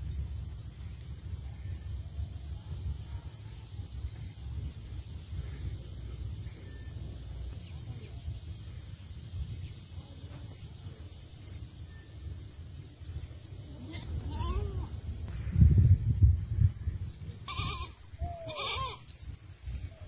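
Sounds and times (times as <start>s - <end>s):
wind rumbling on microphone: 0.0s - 20.0s
goat bleat: 17.4s - 19.0s.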